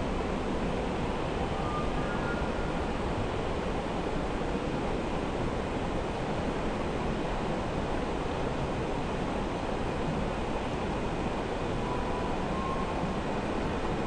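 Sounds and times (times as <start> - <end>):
river water rushing: 0.0 - 14.0.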